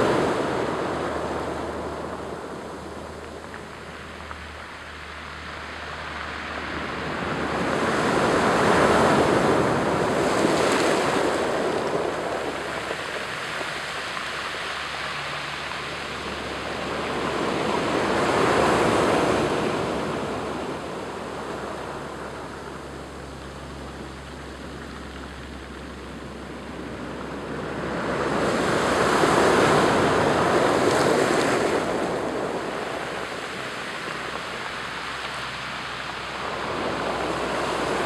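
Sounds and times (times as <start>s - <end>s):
surf surging over cobble beach: 0.0s - 38.0s.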